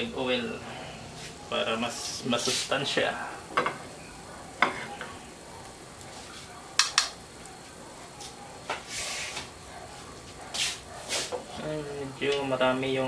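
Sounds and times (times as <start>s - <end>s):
kitchenware clinking: 3.5s - 5.3s.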